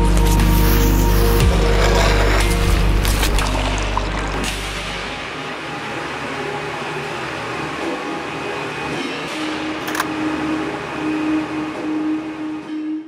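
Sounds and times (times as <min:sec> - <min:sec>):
construction machinery hum: 0:00.0 - 0:13.0
steady low tone: 0:00.6 - 0:08.8.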